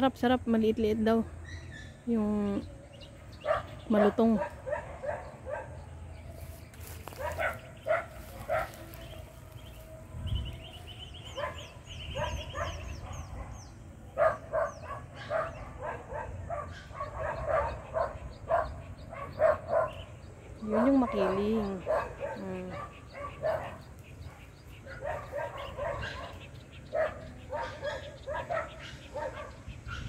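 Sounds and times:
dog barking: 0:03.4 - 0:05.9, 0:07.0 - 0:09.3, 0:11.2 - 0:20.1, 0:20.7 - 0:30.0.

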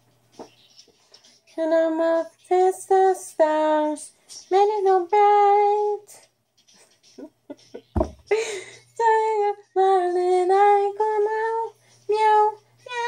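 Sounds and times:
woman singing unaccompanied: 0:01.5 - 0:06.3, 0:08.9 - 0:13.0.

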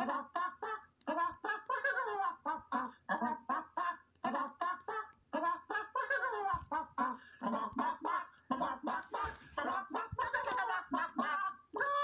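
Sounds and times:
cartoon voice clucking: 0:00.0 - 0:12.0.

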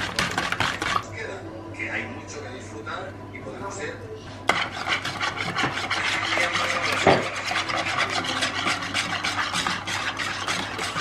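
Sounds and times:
eggs beaten in a bowl: 0:00.0 - 0:01.2, 0:04.4 - 0:11.0
utensil knocking on bowl: 0:04.5 - 0:11.0.

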